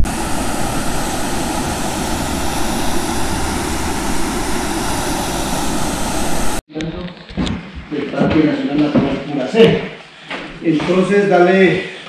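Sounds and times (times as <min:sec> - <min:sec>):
waterfall rushing: 0:00.0 - 0:06.6.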